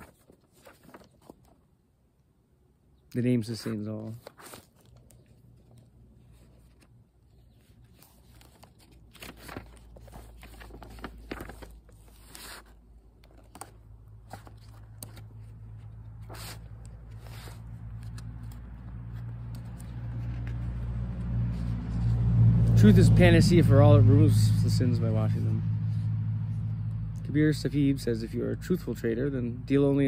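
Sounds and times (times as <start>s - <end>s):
book pages rustling: 0.0s - 1.8s, 3.4s - 22.6s
car approaching: 13.6s - 30.0s.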